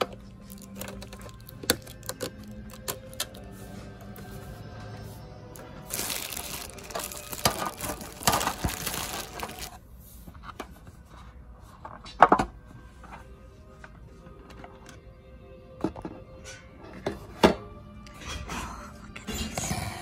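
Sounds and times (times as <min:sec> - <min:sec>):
plastic packaging crinkling: 0:00.3 - 0:03.5, 0:05.6 - 0:09.8.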